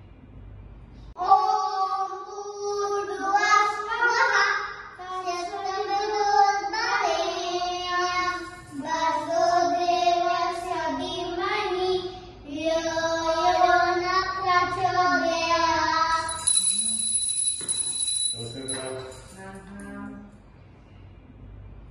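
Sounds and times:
boy singing prayer song: 1.2 - 16.5
high steady ringing: 16.1 - 20.0.

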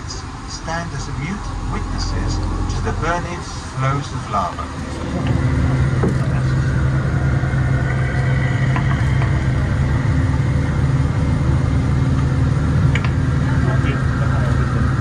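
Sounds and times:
vehicle engine and road noise: 0.0 - 15.0.

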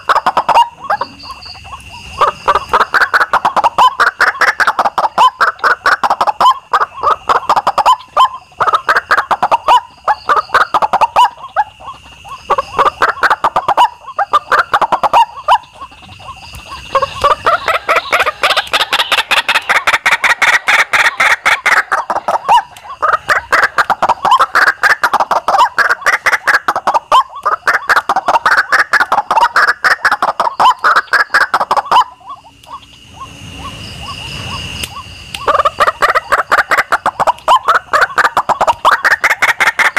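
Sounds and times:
birds croaking calls: 0.0 - 39.9
steady high whine: 31.7 - 36.0.

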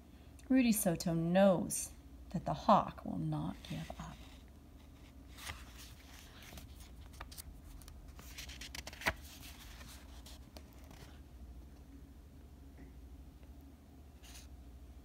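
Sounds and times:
book pages rustling: 3.6 - 11.2.

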